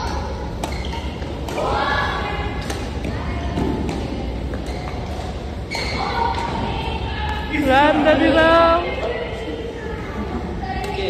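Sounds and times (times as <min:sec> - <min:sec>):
rackets hitting shuttlecock: 0:00.0 - 0:07.5.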